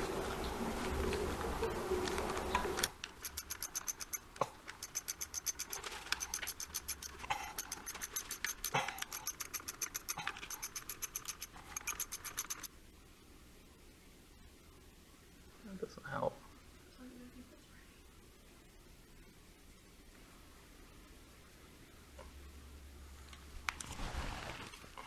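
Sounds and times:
hand ratchet clicking: 0:03.0 - 0:12.7.

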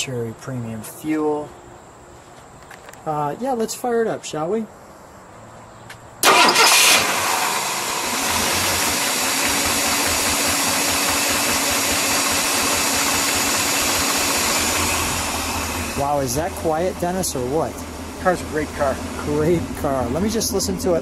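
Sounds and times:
car engine starting and idling: 0:06.2 - 0:21.0.

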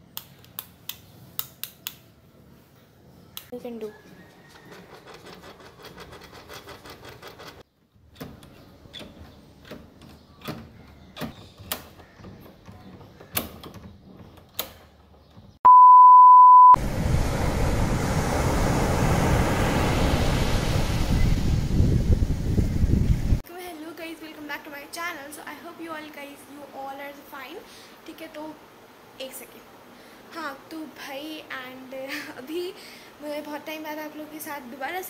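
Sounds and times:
loud steady beep: 0:15.7 - 0:16.8
steady rushing noise: 0:16.8 - 0:23.4.

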